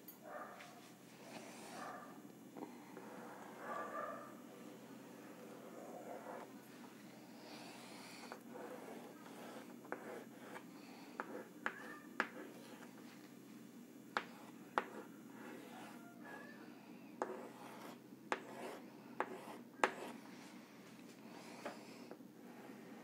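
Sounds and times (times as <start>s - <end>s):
chalk scraping on chalkboard: 7.6s - 12.9s, 14.2s - 16.4s, 17.2s - 20.2s
chalk tapping on board: 9.3s - 10.6s, 11.2s - 12.7s, 14.2s - 15.0s, 17.2s - 20.2s.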